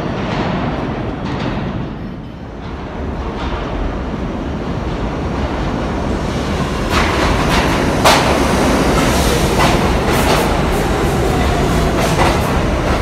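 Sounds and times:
subway train rumble: 0:00.0 - 0:13.0
wheels clacking over rail joints: 0:06.8 - 0:13.0.

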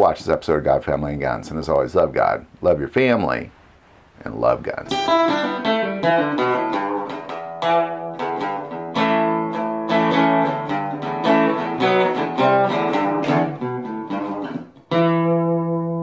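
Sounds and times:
plucked guitar music: 0:04.8 - 0:16.0.

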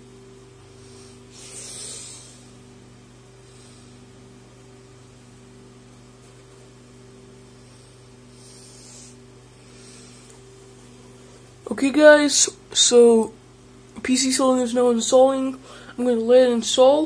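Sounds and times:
desktop computer hum: 0:00.0 - 0:17.0.

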